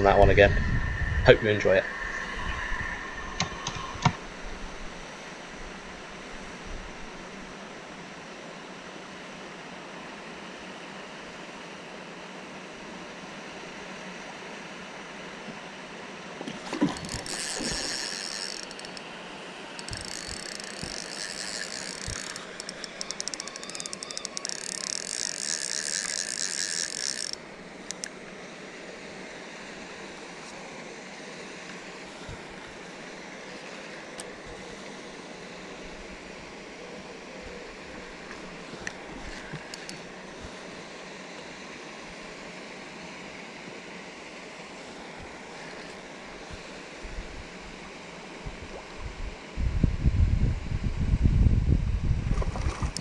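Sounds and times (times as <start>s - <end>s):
fishing reel drag ratcheting: 16.9s - 19.1s, 19.7s - 28.1s, 39.3s - 40.0s.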